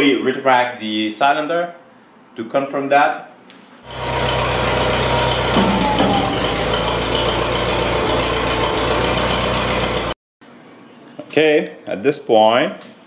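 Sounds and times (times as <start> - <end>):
hydraulic rising whine: 3.8 - 10.2
tractor engine running: 3.9 - 10.2.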